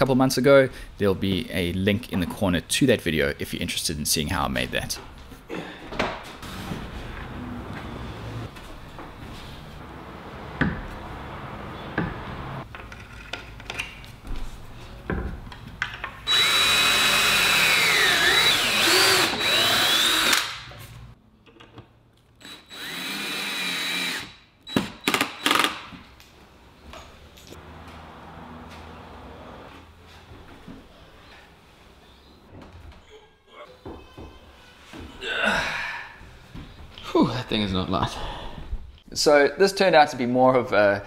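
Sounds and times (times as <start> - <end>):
cordless drill driving screws: 16.3 - 20.6, 22.4 - 25.8.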